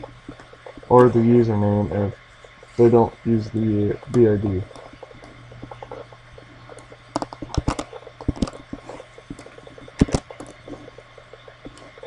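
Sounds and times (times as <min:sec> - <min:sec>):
faint low hum: 0:00.0 - 0:12.0
computer keyboard and mouse clicks: 0:04.0 - 0:12.0.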